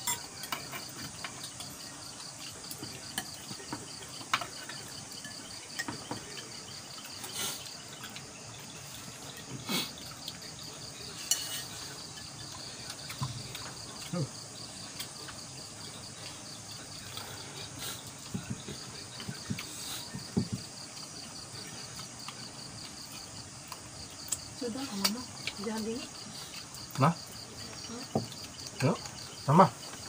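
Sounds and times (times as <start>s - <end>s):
dishes and spoons clinking: 0.0s - 7.3s, 9.2s - 14.1s
night insects chirping: 0.0s - 30.0s.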